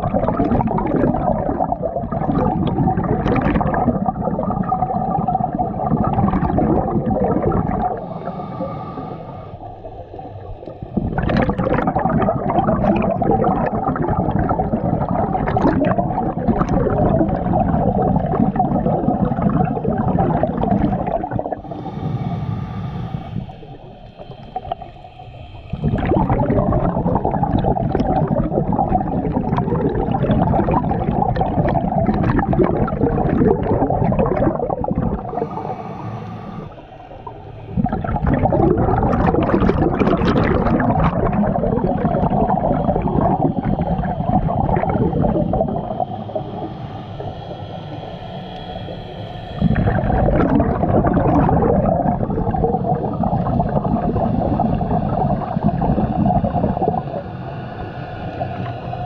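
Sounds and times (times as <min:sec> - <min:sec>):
exhaled bubbles gurgling underwater: 0:00.0 - 0:59.0
diver inhaling through regulator: 0:06.7 - 0:12.8, 0:19.8 - 0:40.0, 0:40.7 - 0:59.0.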